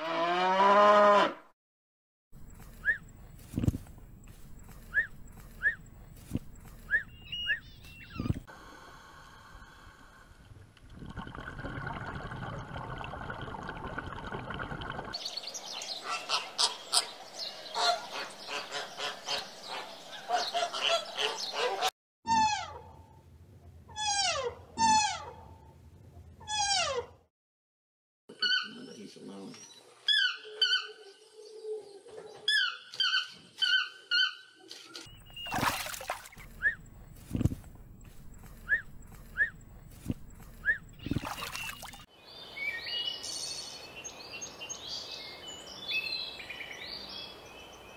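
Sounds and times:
toucan yelping calls: 4.8 - 8.4, 36.3 - 37.1, 38.0 - 41.0
flamingos honking: 15.9 - 21.9.

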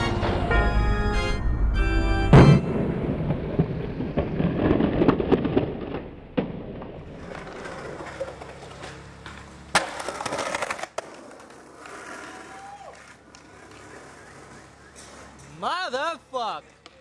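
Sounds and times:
skateboard wheels rolling on concrete: 2.3 - 17.0
skateboard smacking the ground: 4.1 - 15.6, 16.7 - 17.0
skateboard clacking: 6.8 - 17.0.

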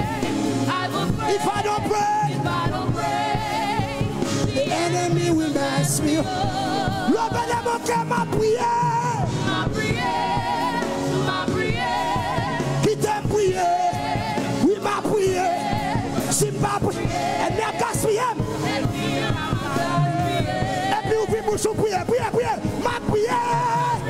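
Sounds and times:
gospel singers with accompaniment: 0.0 - 24.0.

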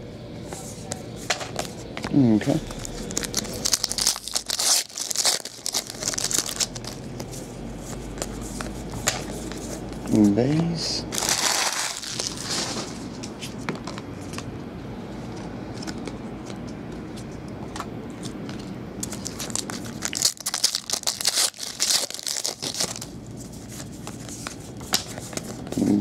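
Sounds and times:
low steady hum: 0.0 - 26.0
foil wrapper crackling: 2.7 - 7.0, 11.1 - 13.0, 19.0 - 23.2.

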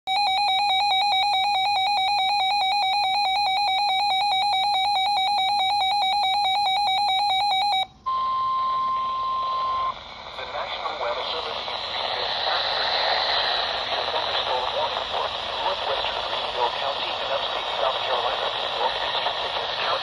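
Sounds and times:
rapidly pulsing electronic beep: 0.1 - 11.6
steady warning tone: 0.1 - 12.1
radio static: 8.9 - 20.0.

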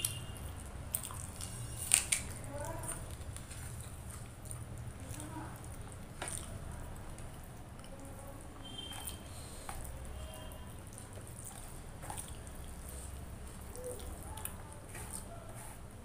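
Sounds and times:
fingers squishing rice: 8.6 - 16.0.

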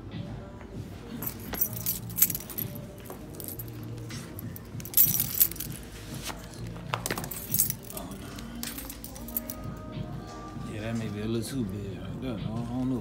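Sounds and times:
shoe rustling and light jingling: 1.0 - 11.1.

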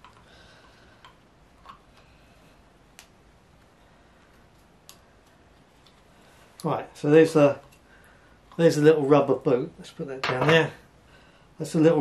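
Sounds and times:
faint clicks of small parts: 0.0 - 2.2, 2.9 - 6.8.

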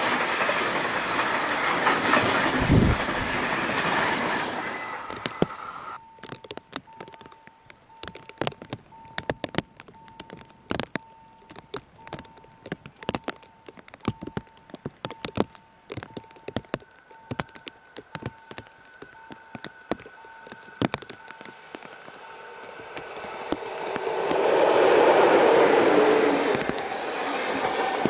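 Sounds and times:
faint beeping tone: 4.1 - 23.5
raindrops tapping: 5.1 - 28.0
higher steady tone: 17.1 - 28.0.

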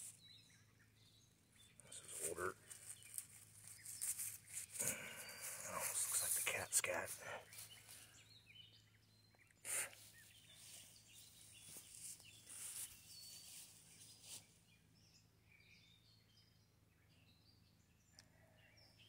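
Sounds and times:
faint bird chirps: 0.0 - 19.0
footsteps rustling through grass: 2.1 - 5.9, 7.5 - 8.1, 10.1 - 14.5.

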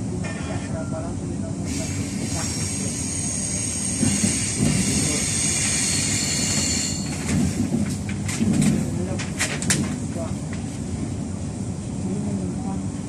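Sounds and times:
electric train passing: 1.6 - 8.3.

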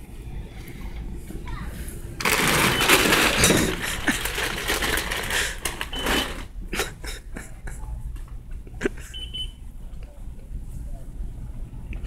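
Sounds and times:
mobility scooter clattering: 2.2 - 6.5.

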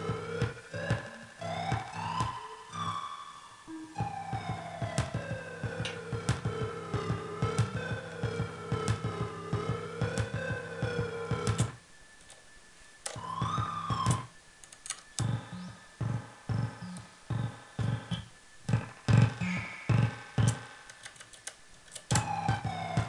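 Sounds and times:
long falling synth tone: 0.0 - 11.8, 13.2 - 14.4, 22.1 - 23.0.

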